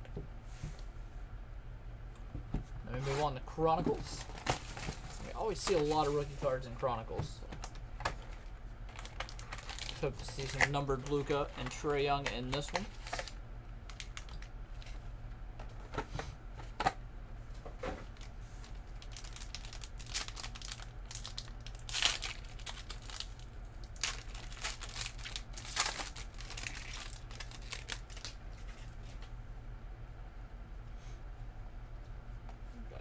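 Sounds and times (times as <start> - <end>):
low electrical hum: 0.0 - 33.0
foil wrappers crinkling and tearing: 4.0 - 6.6, 8.2 - 15.0, 18.1 - 29.2.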